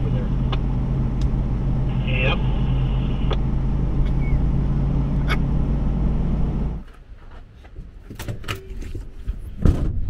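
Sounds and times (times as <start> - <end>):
vehicle engine humming: 0.0 - 7.0.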